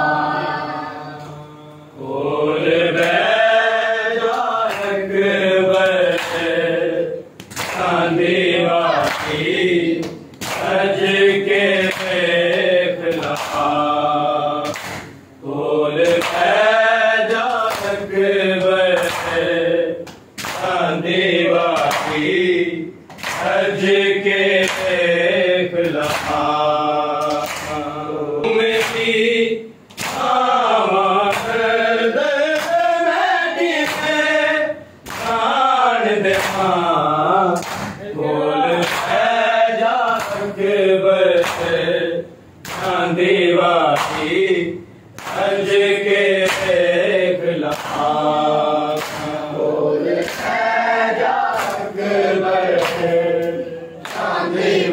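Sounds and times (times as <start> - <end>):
men chanting a lament: 0.0 - 54.9
hands slapping chests: 7.4 - 7.9, 10.0 - 10.8, 11.9 - 13.7, 14.6 - 15.2, 20.0 - 20.8, 23.1 - 23.6, 25.9 - 26.4, 27.2 - 27.9, 29.9 - 30.3, 42.6 - 43.0, 48.9 - 49.4.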